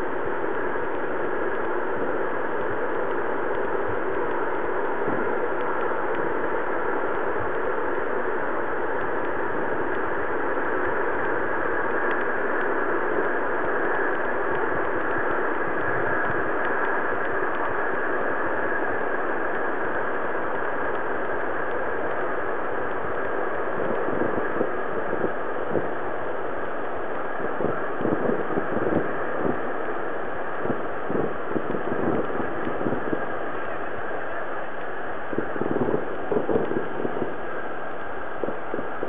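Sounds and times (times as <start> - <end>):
steady rushing noise: 0.0 - 39.0.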